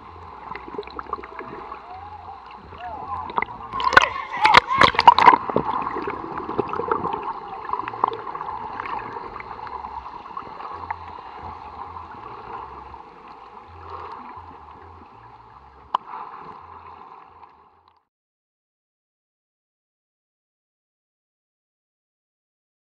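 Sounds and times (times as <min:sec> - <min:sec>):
muffled underwater bubbling: 0:00.0 - 0:18.0.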